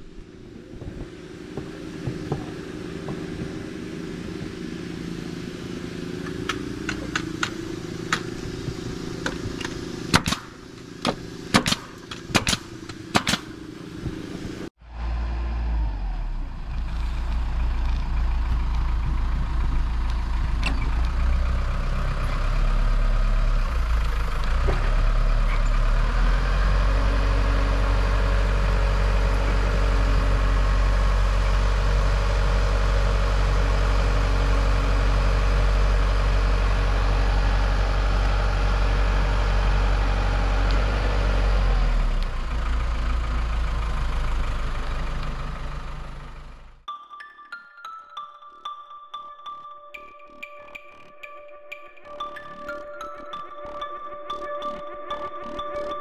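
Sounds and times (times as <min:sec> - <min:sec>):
engine running steadily: 0:00.0 - 0:46.9
pneumatic nail gun firing: 0:09.2 - 0:13.5.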